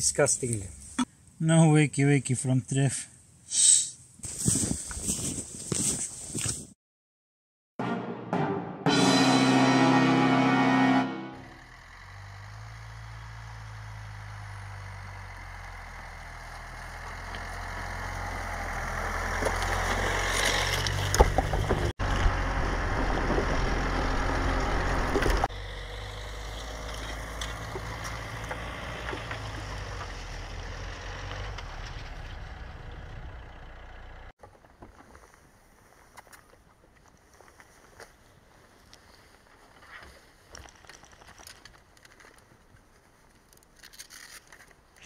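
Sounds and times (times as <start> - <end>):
tyres crunching through snow: 4.2 - 6.8, 12.0 - 44.8
car engine running: 20.9 - 34.3.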